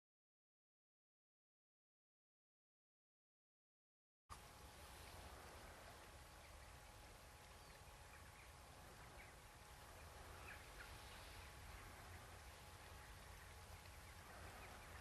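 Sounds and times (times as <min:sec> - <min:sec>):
low hiss and rumble: 0:04.3 - 0:15.0
faint bird chirps: 0:04.7 - 0:15.0.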